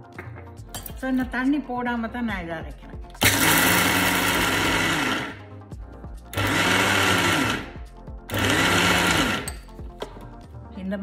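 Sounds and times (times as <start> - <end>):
mixer grinder motor whirring: 3.2 - 5.4, 6.3 - 9.5.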